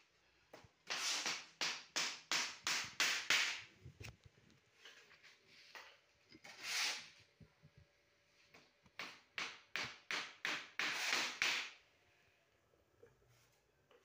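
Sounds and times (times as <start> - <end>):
shovel scraping sand-cement mix: 6.5 - 7.2.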